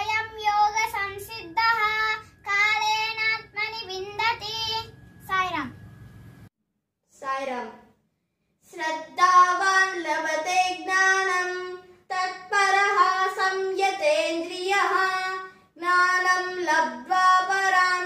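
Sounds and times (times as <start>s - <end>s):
boy chanting: 0.0s - 5.7s, 8.6s - 18.0s
breaths: 8.1s - 8.6s, 15.5s - 15.8s.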